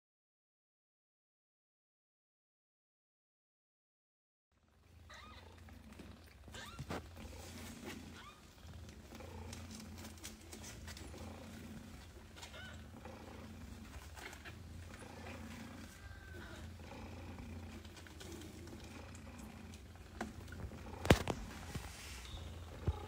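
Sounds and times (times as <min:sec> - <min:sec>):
cat purring: 0:04.7 - 0:23.0
kittens squeaking: 0:06.5 - 0:07.0, 0:08.1 - 0:08.4, 0:12.4 - 0:12.8.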